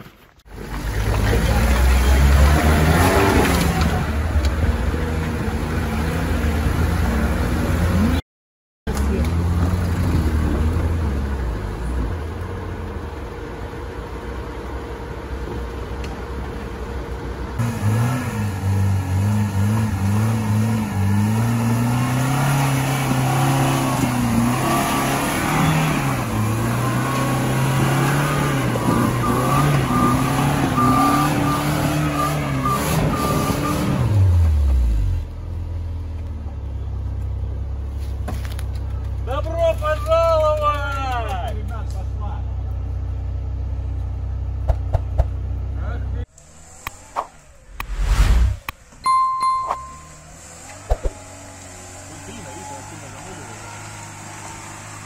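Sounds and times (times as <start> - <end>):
car engine revving: 0.9 - 8.2, 17.6 - 35.2.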